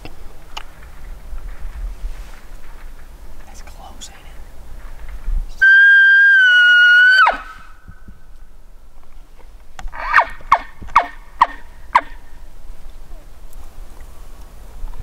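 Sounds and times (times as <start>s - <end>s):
elk whistle call: 5.6s - 7.8s
elk mews sliding down: 9.9s - 12.2s.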